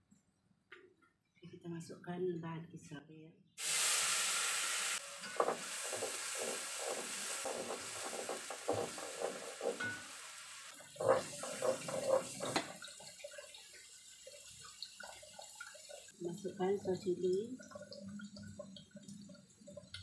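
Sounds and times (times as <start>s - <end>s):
paste sizzling in oil: 3.6s - 13.9s
sharp knocks and clatters: 5.2s - 10.1s, 10.9s - 12.9s
spatula scraping a pan: 5.2s - 12.8s.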